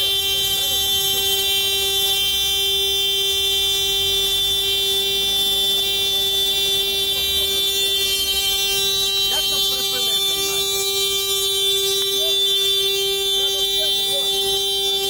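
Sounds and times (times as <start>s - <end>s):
faint voices: 0.0s - 2.2s, 5.4s - 15.0s
car horn steady note: 0.0s - 15.0s.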